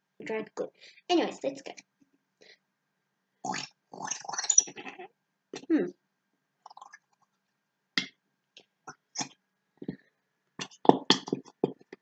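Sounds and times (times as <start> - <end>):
glue bottle sputtering: 3.5 - 4.9.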